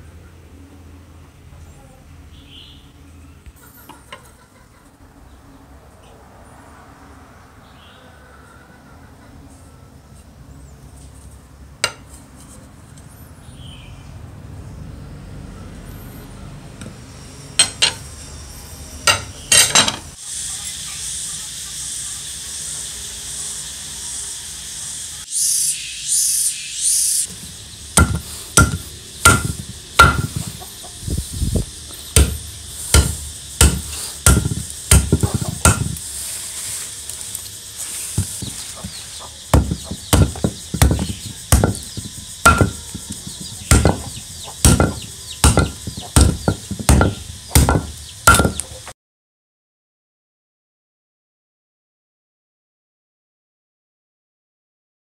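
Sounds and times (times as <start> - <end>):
cleaver chopping wood: 27.9 - 30.6, 32.1 - 36.0, 38.1 - 48.7.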